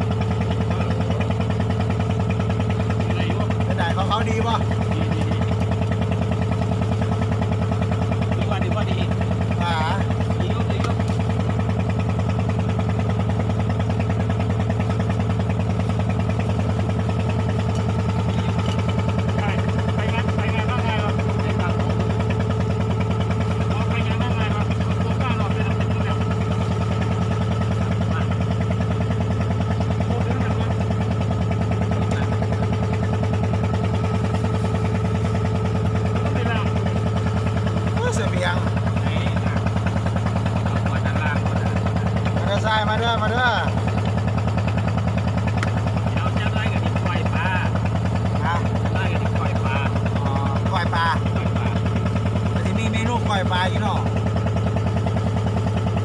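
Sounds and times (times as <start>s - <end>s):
boat engine chugging: 0.0s - 56.0s.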